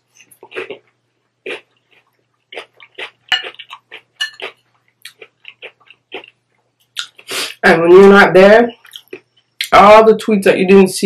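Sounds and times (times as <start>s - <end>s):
close-up chewing: 0.1s - 7.3s, 8.8s - 9.7s
metal spoon scraping glass bowl: 4.2s - 4.4s.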